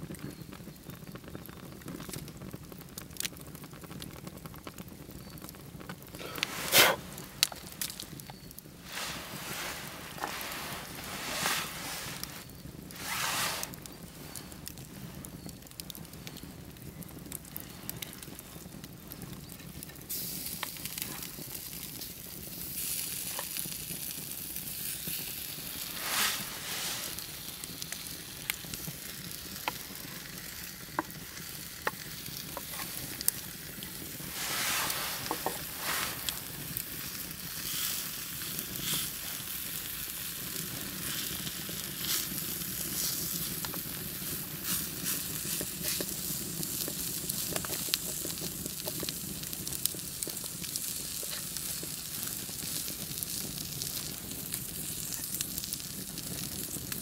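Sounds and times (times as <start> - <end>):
cheese sizzling in a pan: 0.0 - 57.0
wood fire crackling: 0.0 - 57.0
wooden spoon scraping a pan: 6.2 - 14.5, 25.8 - 28.0, 30.9 - 36.9, 44.6 - 46.2.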